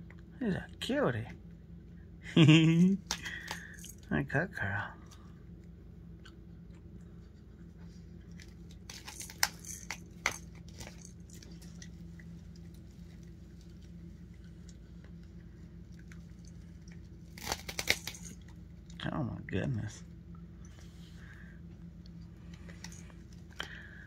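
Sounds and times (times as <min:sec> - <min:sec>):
steady low hum: 0:00.0 - 0:24.0
crackly ripping: 0:08.2 - 0:18.6.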